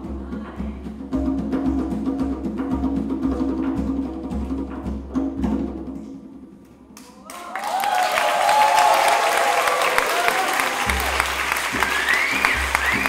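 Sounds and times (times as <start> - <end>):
hand-drum music: 0.0 - 7.0, 10.6 - 13.0
applause and cheering: 7.0 - 13.0.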